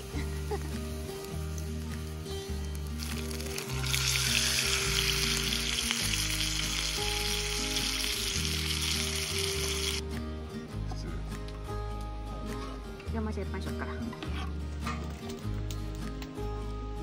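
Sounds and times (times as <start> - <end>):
chicken sizzling in a skillet: 0.0 - 10.0.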